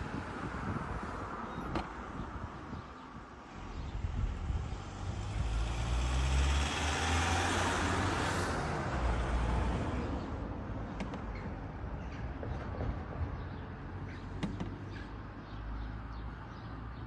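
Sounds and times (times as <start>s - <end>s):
vehicle passing: 3.7s - 10.4s.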